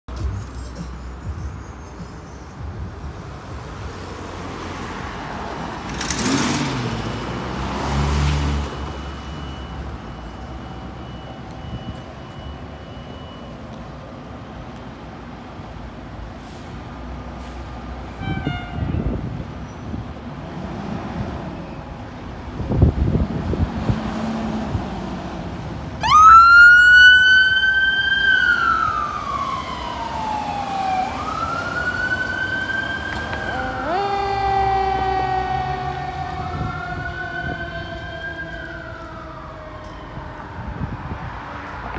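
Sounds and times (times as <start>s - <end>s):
passing street traffic: 0.1s - 41.9s
fire engine siren wailing: 26.0s - 41.5s.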